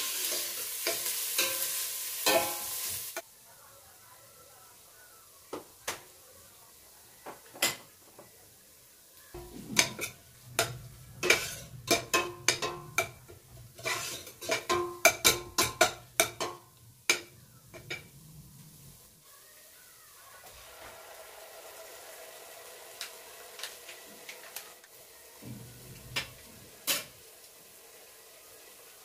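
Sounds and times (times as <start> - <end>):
plastic spatula scraping a metal pot: 9.4 - 13.1, 13.7 - 14.7.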